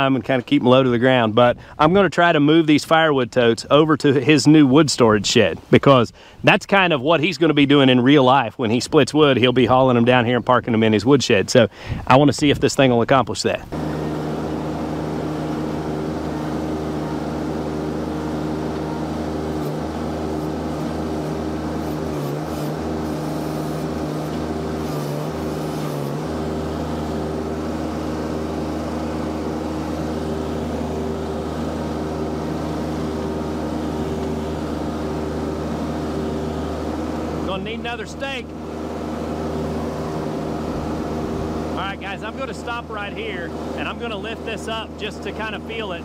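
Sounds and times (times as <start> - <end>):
low engine hum: 13.6 - 46.0.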